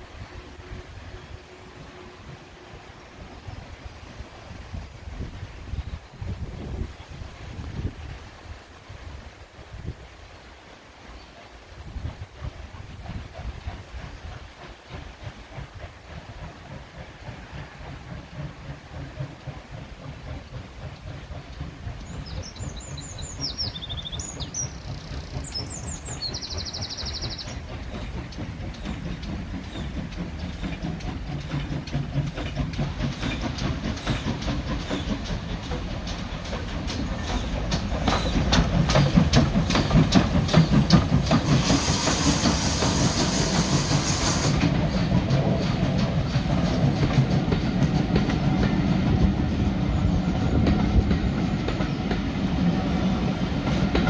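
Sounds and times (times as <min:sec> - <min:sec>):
steam hiss: 0:00.0 - 0:54.0
steam train passing: 0:00.0 - 0:54.0
wheels clicking over rail joints: 0:13.0 - 0:49.8, 0:50.4 - 0:54.0.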